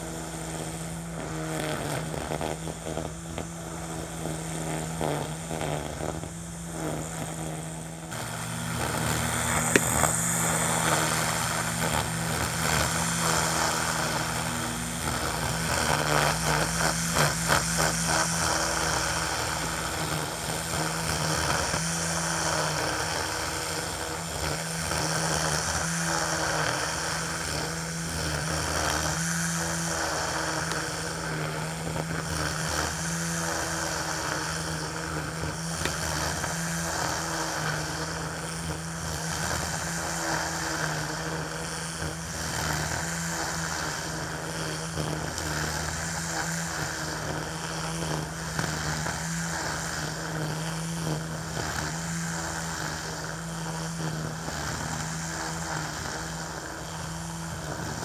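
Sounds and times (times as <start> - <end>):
string trimmer motor hum: 0.0 - 58.0
trimmer line swishing through grass: 0.0 - 58.0.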